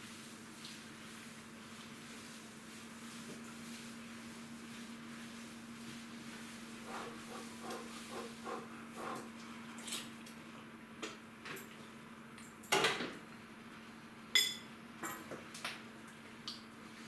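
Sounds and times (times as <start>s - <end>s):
ringing metallic clink: 14.4s - 14.7s.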